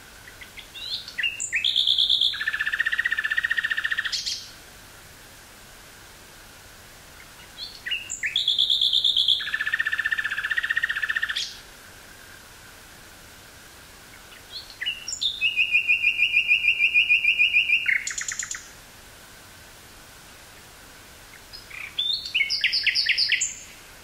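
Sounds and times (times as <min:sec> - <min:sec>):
nightingale singing: 0:00.0 - 0:04.6, 0:07.1 - 0:11.7, 0:14.1 - 0:18.8, 0:20.5 - 0:24.0.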